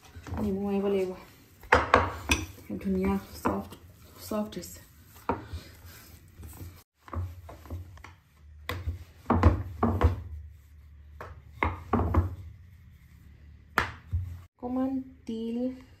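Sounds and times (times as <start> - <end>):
rolling pin on wooden board: 0.1 - 12.6.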